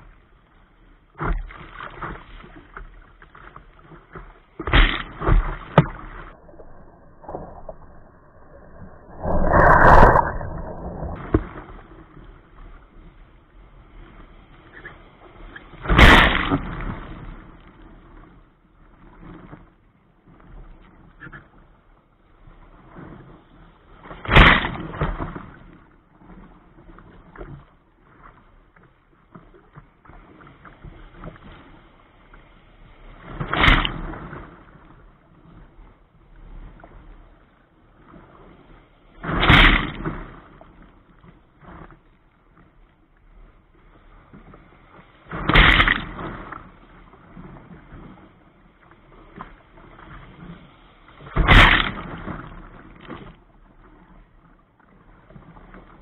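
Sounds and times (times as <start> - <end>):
water sloshing against hull: 0.0 - 56.0
waves crashing over kayak: 3.4 - 13.1, 13.7 - 17.6, 23.9 - 26.4, 30.2 - 35.0, 38.2 - 42.0, 43.3 - 54.2.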